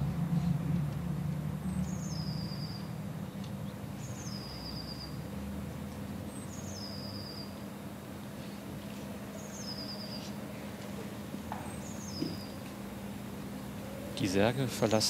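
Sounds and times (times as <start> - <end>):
steady low hum: 0.0 - 15.0
small bird whistling call: 1.8 - 2.9, 4.0 - 5.2, 6.4 - 7.6, 9.4 - 10.4.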